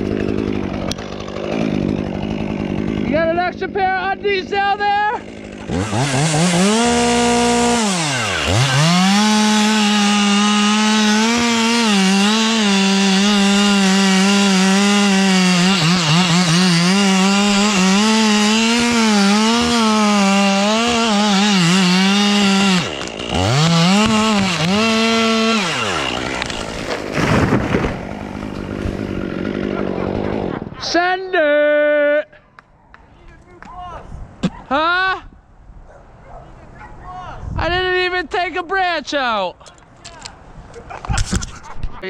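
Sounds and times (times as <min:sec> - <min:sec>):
chainsaw cutting wood: 0:00.0 - 0:30.7.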